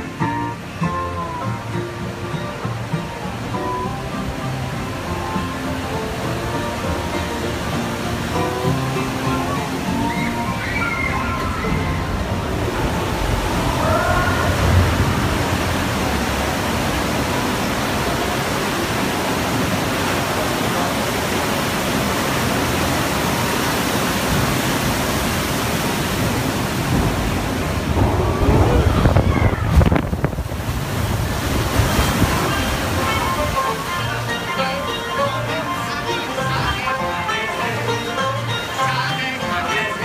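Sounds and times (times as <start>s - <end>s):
faint music: 0.0s - 29.8s
water rushing: 0.0s - 40.0s
low rumble: 11.2s - 18.0s, 26.2s - 31.9s.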